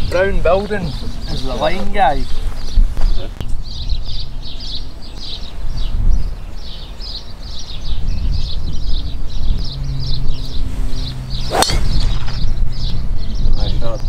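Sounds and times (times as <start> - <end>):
birds chirping: 0.0 - 14.0
wind rumble on microphone: 0.0 - 14.0
golf club striking ball: 11.3 - 12.6.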